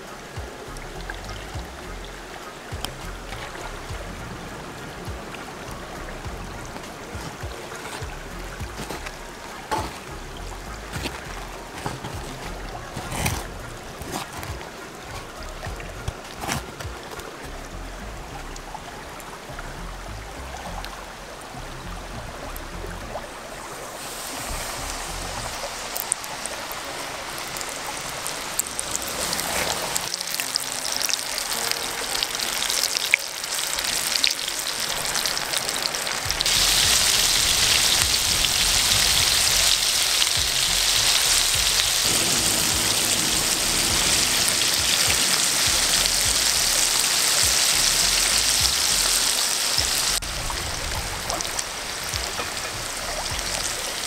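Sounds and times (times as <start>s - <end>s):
hot oil sizzling in skillet: 23.8s - 54.0s.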